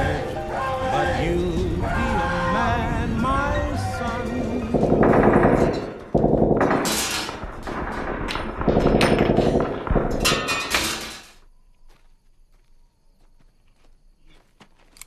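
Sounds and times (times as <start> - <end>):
gunfire bursts: 4.7 - 10.6.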